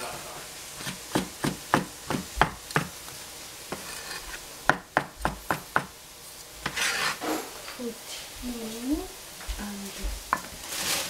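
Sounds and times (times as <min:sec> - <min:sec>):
cleaver chopping on cutting board: 0:00.8 - 0:02.9, 0:04.7 - 0:05.9.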